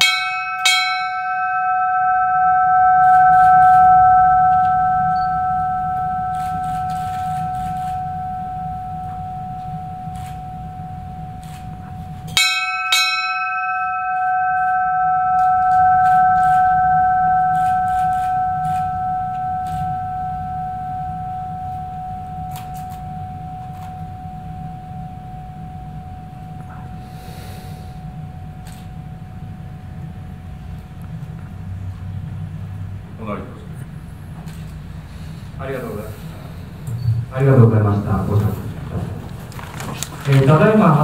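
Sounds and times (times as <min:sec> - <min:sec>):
ship's bell ringing: 0:00.0 - 0:32.3.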